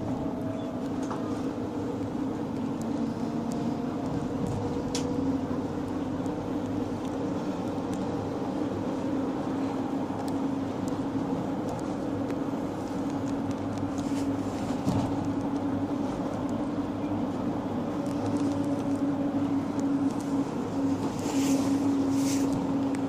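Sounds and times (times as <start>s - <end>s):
road and body noise: 0.0s - 23.0s
vehicle engine hum: 0.0s - 23.0s.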